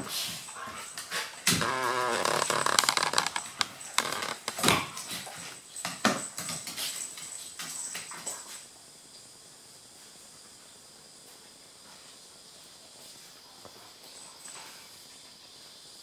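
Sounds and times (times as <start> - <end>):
dogs scuffling on wooden floor: 0.0 - 8.7.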